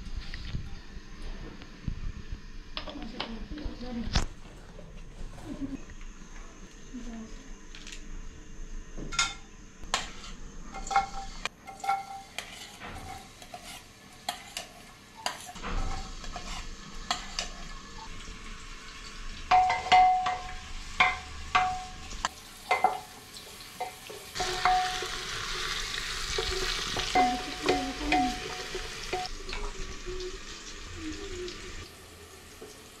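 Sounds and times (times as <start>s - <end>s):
onions sizzling in hot oil: 10.0s - 33.0s
wooden utensils knocking on metal pot: 19.5s - 22.0s, 23.8s - 25.2s, 26.4s - 29.3s.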